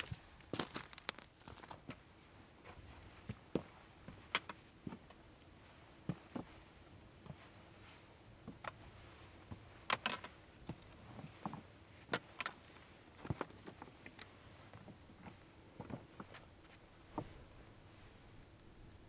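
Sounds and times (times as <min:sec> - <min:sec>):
small clicks and knocks: 0:09.9 - 0:12.6.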